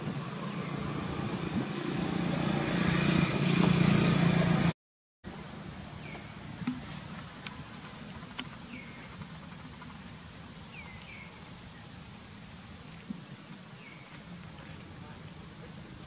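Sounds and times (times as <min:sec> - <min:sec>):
steady background hiss: 0:05.3 - 0:16.0.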